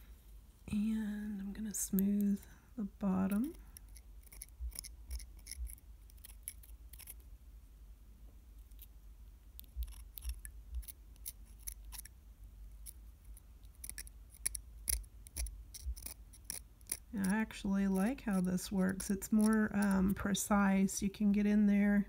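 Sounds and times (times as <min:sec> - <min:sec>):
knife blade scraping resin: 0:03.7 - 0:07.2, 0:13.7 - 0:20.2.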